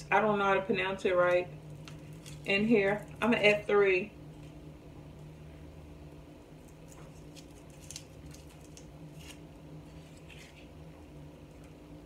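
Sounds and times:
foil wrapper crinkling: 1.7 - 3.2, 6.6 - 10.7.

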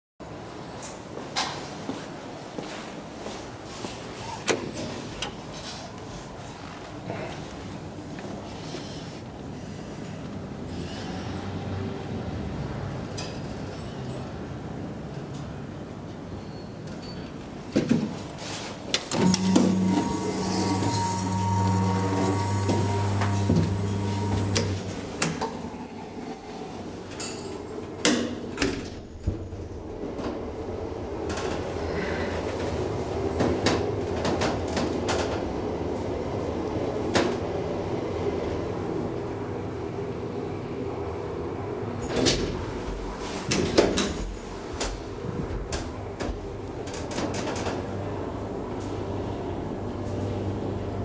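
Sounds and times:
elevator door sliding open: 19.0 - 27.1
hydraulic elevator hum: 19.1 - 25.8
elevator doors clunking and rattling: 27.0 - 39.4, 41.0 - 50.9.

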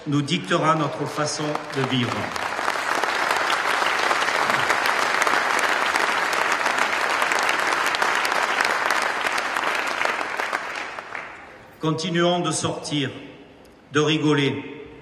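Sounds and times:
audience applauding: 0.7 - 11.6.

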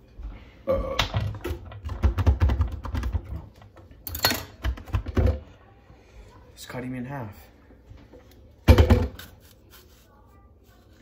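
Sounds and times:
utensils clattering on countertop: 4.0 - 5.4.

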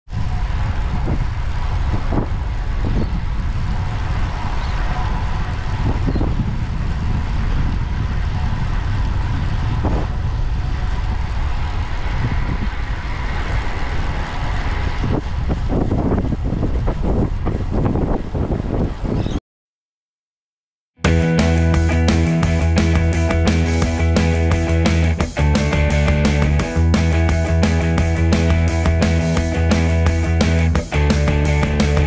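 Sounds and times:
steady low rumble: 0.1 - 19.0, 21.0 - 32.0
wind buffeting microphone: 0.1 - 19.4.

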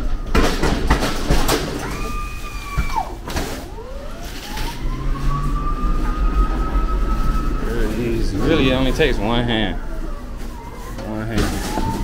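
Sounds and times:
knocks and rattles: 0.0 - 2.1.

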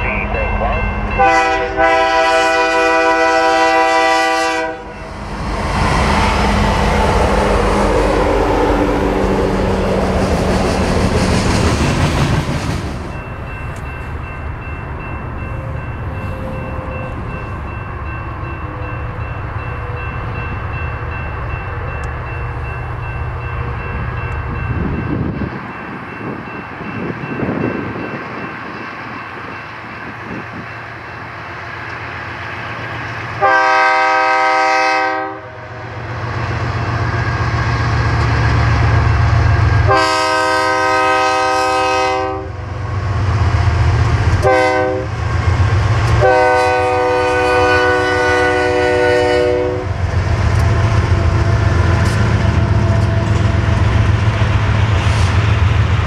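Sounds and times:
diesel locomotives rumbling: 0.0 - 56.0
train rushing past: 0.0 - 56.0
locomotive air horn: 1.2 - 5.0, 33.4 - 35.7, 39.9 - 42.6, 44.4 - 45.2, 46.2 - 50.0.

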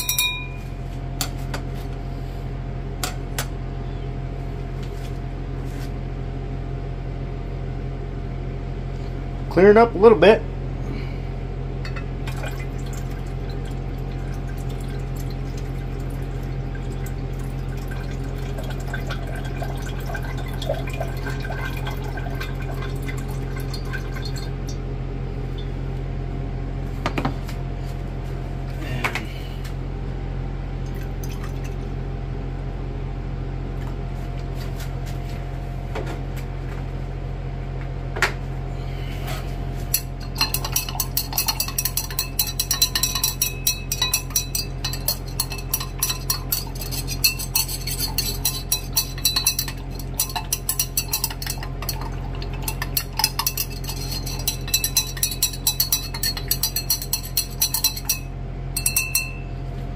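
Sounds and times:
vacuum pump humming: 0.0 - 59.9
liquid trickling and dripping: 12.2 - 24.8, 47.6 - 56.6.

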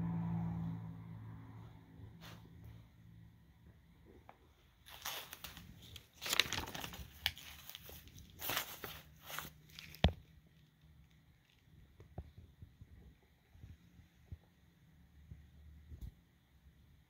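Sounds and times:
paper rustling and crinkling: 4.8 - 11.7.

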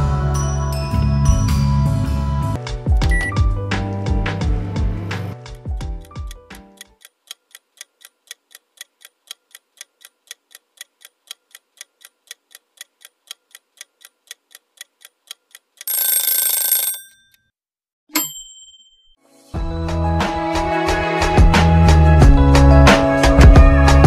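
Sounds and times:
kitchen timer ticking: 5.8 - 17.4
timer ringing: 15.8 - 17.5, 18.1 - 19.2
short ding: 18.1 - 19.2.

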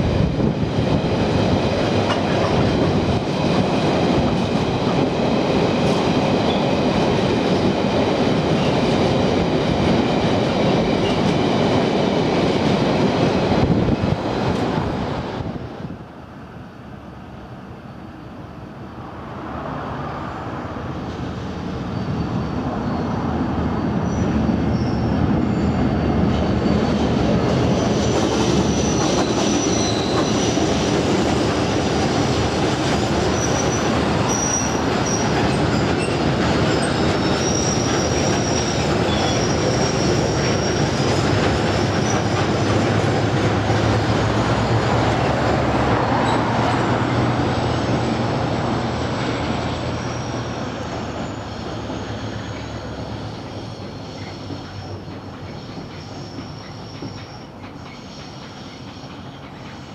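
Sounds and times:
diesel locomotive passing: 0.0 - 59.9
high wheel squeals: 21.8 - 30.8, 33.3 - 42.6, 49.0 - 59.9.

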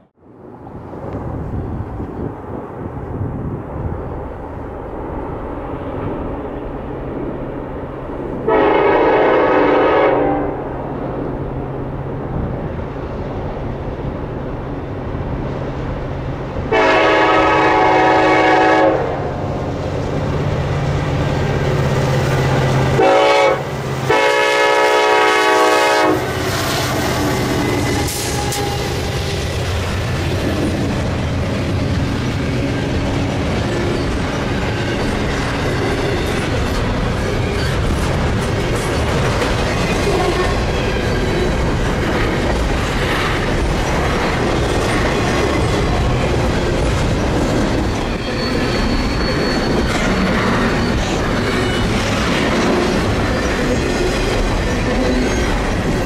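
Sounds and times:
locomotive horn blasts: 8.4 - 10.6, 16.7 - 19.4, 23.0 - 26.3
train wheels clattering on rails: 26.2 - 56.0.

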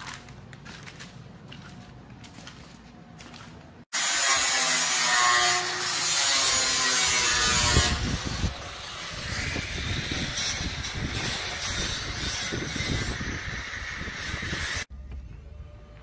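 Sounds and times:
power tool on sheet aluminum: 3.9 - 14.9.

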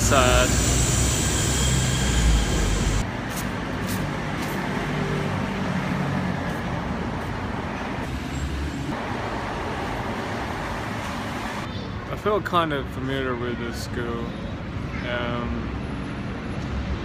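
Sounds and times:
heavy rumble and hiss: 0.0 - 3.0
vehicles passing: 0.0 - 17.0.

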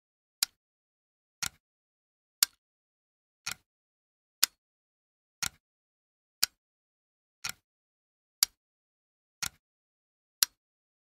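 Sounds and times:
clock ticking: 0.4 - 0.6, 1.4 - 1.6, 2.4 - 2.6, 3.4 - 3.7, 4.4 - 4.6, 5.4 - 5.6, 6.4 - 6.6, 7.4 - 7.6, 8.4 - 8.6, 9.4 - 9.6, 10.4 - 10.6.

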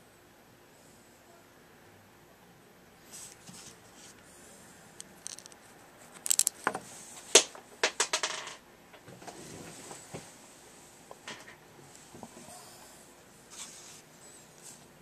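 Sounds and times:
metal parts clicking and clinking: 5.1 - 5.6, 6.2 - 6.7.

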